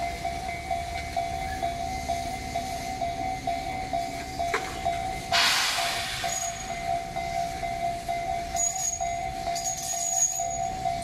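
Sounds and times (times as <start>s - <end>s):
electric trains moving past: 0.0s - 11.0s
level-crossing warning bell ringing: 0.0s - 11.0s
loud burst of hiss: 5.3s - 6.7s.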